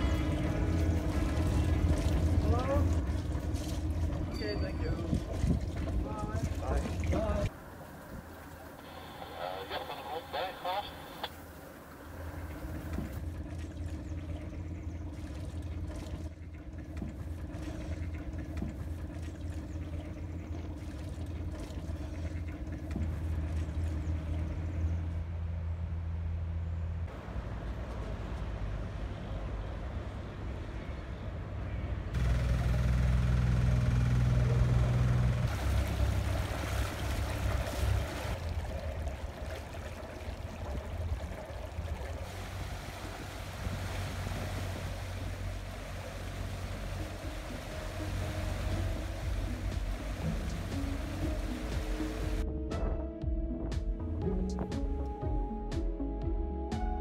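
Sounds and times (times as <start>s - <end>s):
low engine drone: 0.0s - 57.0s.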